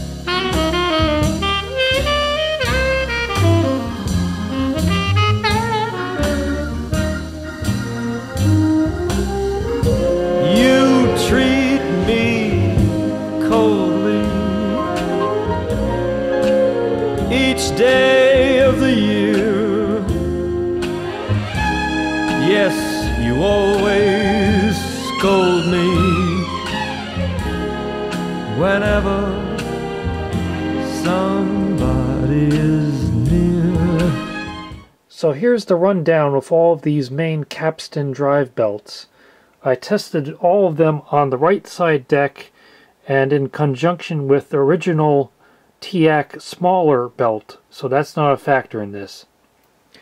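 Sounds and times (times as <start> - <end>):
song with singing over instruments: 9.1 - 34.8.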